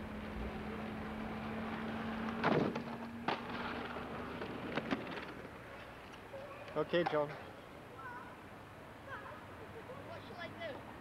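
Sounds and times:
skateboard wheels rolling on asphalt: 0:00.0 - 0:09.0.

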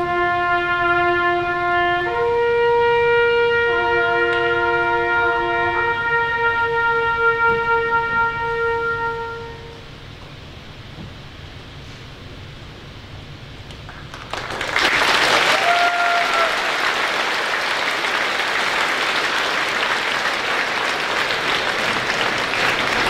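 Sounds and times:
audience applause: 0:13.7 - 0:23.0
high call from crowd: 0:14.3 - 0:23.0.

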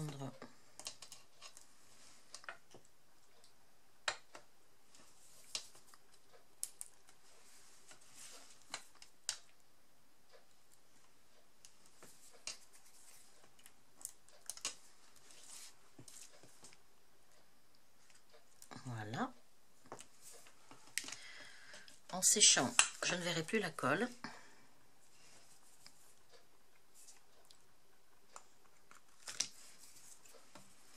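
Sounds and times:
faint paper rustling: 0:28.9 - 0:30.9.

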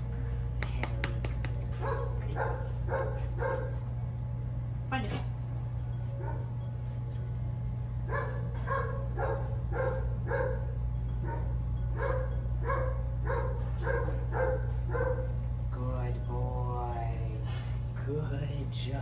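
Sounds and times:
steady low hum: 0:00.0 - 0:19.0
dog barking: 0:01.8 - 0:03.8, 0:08.1 - 0:15.4.

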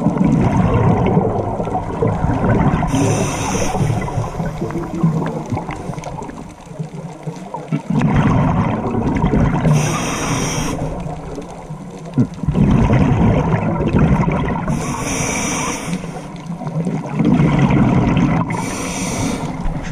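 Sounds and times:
bubbling exhaled air: 0:00.0 - 0:19.9
regulator breath hiss: 0:02.9 - 0:04.7, 0:09.7 - 0:11.0, 0:14.7 - 0:16.4, 0:18.6 - 0:19.6.

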